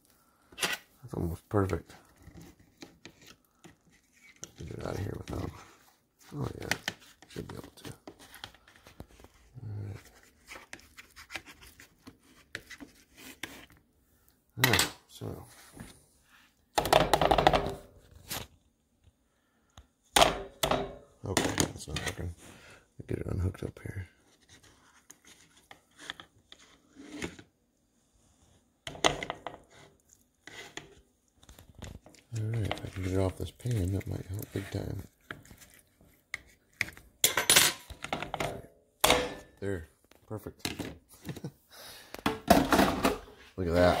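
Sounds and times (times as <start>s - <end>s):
metal fork scraping plastic: 2.0s - 5.8s
low voice sound: 9.5s - 10.2s.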